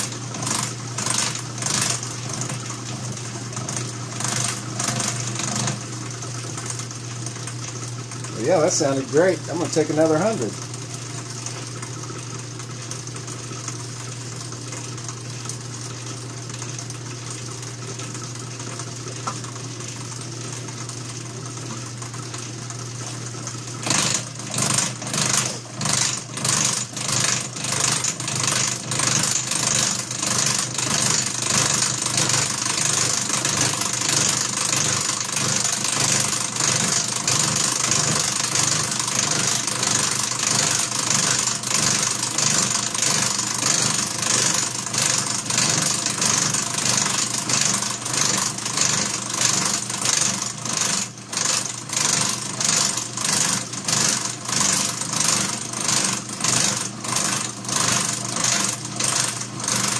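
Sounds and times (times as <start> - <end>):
milling machine humming: 0.0 - 59.9
cutter grinding metal: 23.8 - 59.9.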